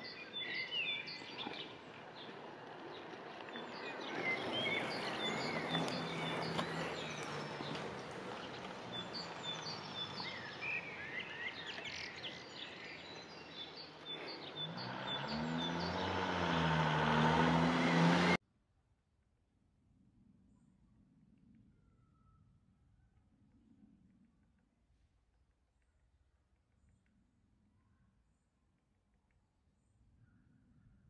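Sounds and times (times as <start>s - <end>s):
birds chirping: 0.0s - 18.4s
low engine hum: 0.4s - 18.4s.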